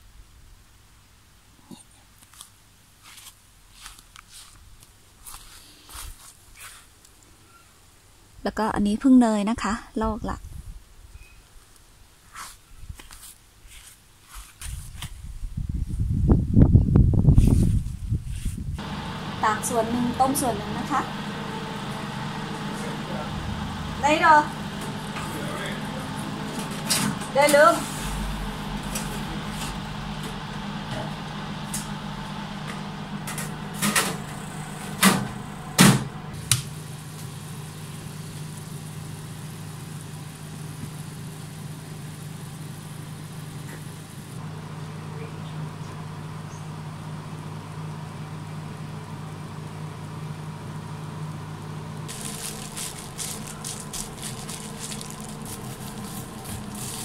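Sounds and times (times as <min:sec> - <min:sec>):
dehydrator fan humming: 0:15.5 - 0:57.0
plastic bags crinkling: 0:52.1 - 0:57.0.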